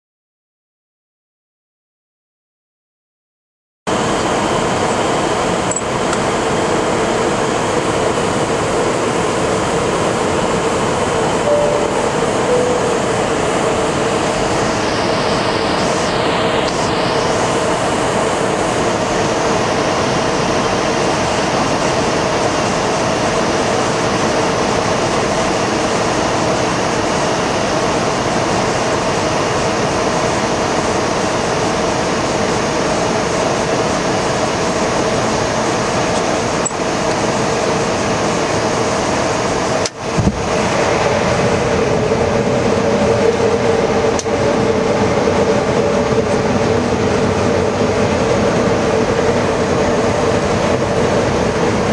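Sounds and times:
engine and air-conditioning hum: 0:04.0 - 0:51.9
rush of airflow: 0:40.0 - 0:51.9.

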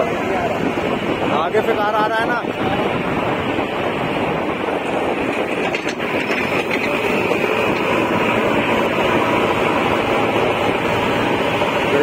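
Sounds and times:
bike running: 0:00.0 - 0:12.0
diesel engine: 0:00.0 - 0:12.0
wind: 0:00.0 - 0:12.0
faint rattles: 0:05.1 - 0:08.2
tyres rolling: 0:05.2 - 0:10.4.

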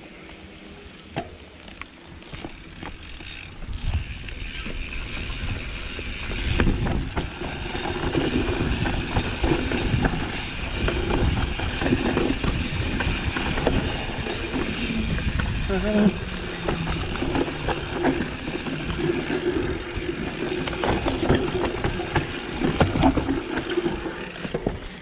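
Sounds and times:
bike tyres rumbling on dirt: 0:00.0 - 0:25.0
bike rattling over bumps: 0:01.0 - 0:25.0.

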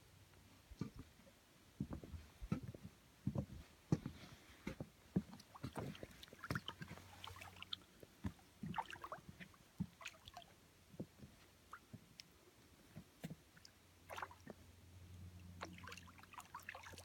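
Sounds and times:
water splashing and sloshing: 0:04.7 - 0:17.0.

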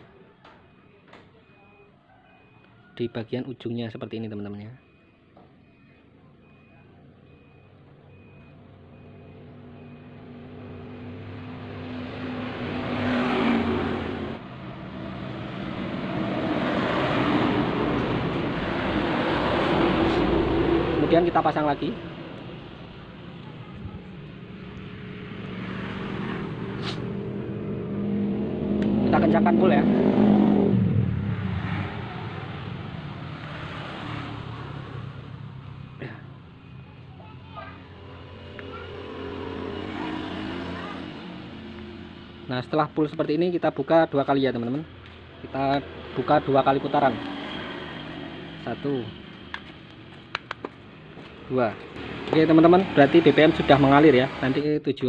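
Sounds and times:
faint repeating beep: 0:00.3 - 0:03.2, 0:04.3 - 0:10.2.

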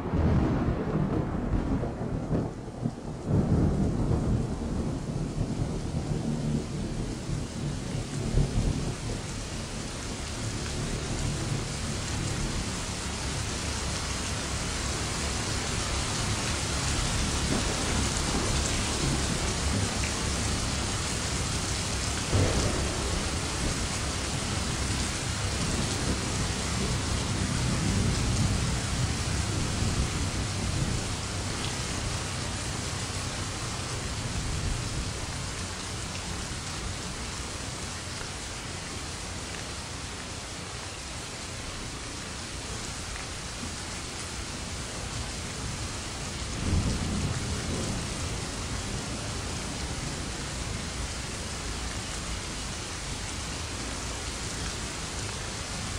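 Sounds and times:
low thunder rumbling: 0:00.0 - 0:12.7, 0:15.9 - 0:35.6, 0:46.4 - 0:50.4
heavy rain pouring: 0:00.0 - 0:55.9.

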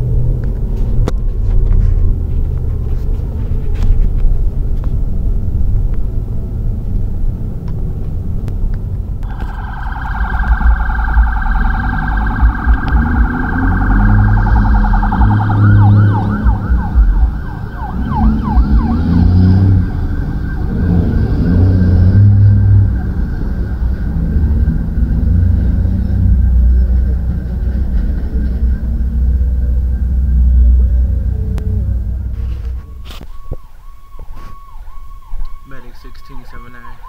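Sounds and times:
car engine rumble: 0:00.0 - 0:37.0
road noise: 0:00.0 - 0:37.0
ambulance siren: 0:09.2 - 0:31.7, 0:32.4 - 0:37.0.

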